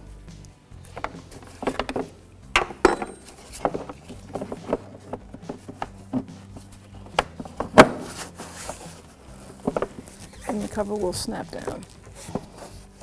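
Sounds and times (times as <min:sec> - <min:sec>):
plastic cover knocking and clicking: 0:00.9 - 0:06.5.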